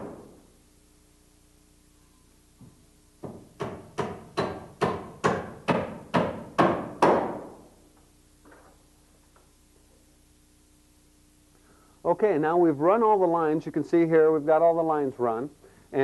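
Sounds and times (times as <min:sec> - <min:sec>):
hammer driving nails: 0:03.2 - 0:07.6.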